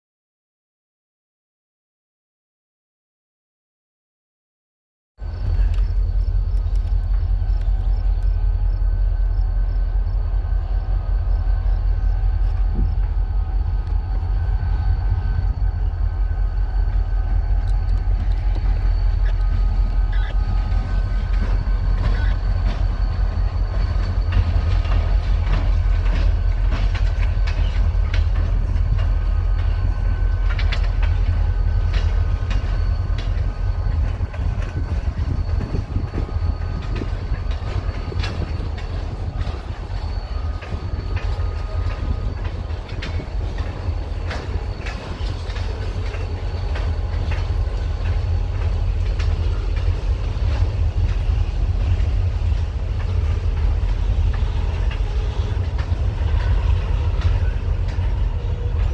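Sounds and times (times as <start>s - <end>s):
freight train low rumble: 5.2s - 58.9s
wheels clicking over rail joints: 15.3s - 58.9s.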